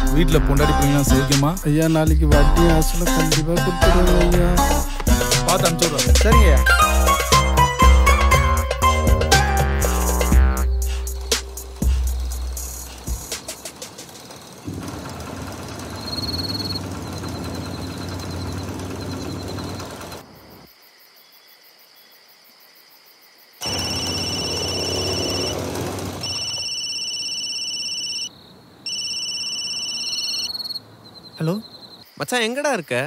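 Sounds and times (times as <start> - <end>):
faint cricket chirps: 10.7 - 14.7, 15.8 - 25.6, 26.2 - 33.0
mobile phone ringtone: 23.6 - 25.5, 26.2 - 28.3, 28.9 - 30.8.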